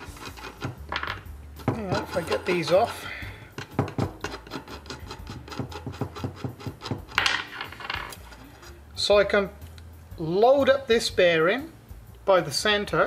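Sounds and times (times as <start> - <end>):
metallic clicks and scrapes: 0.0 - 8.9.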